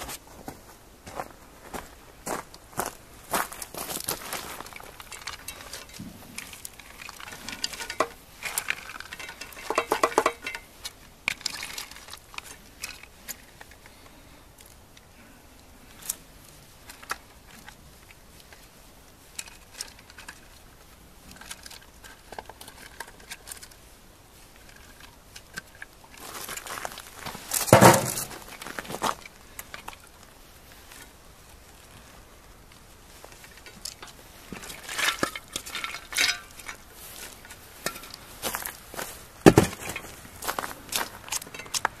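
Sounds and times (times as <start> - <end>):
clatter in cooking pot: 7.0 - 10.7.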